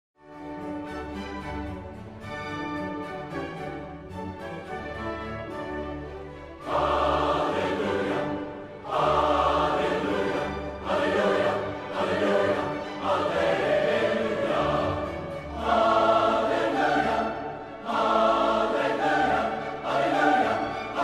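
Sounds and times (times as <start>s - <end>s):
choir singing held chords: 6.6s - 21.0s.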